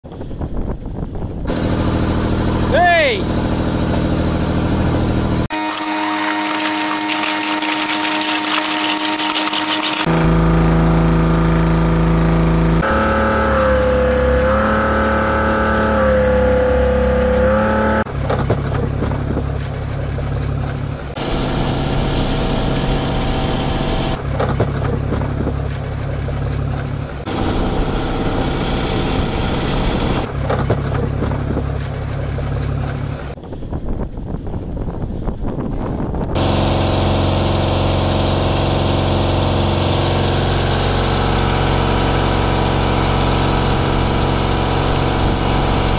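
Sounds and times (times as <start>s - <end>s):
boat engine running: 1.0s - 33.4s, 36.4s - 45.9s
high wavering whine: 1.5s - 18.1s, 27.3s - 30.3s.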